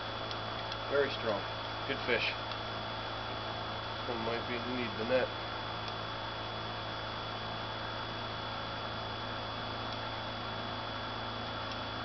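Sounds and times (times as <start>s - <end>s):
high steady whine and hiss: 0.0s - 12.0s
low electrical hum: 0.0s - 12.0s.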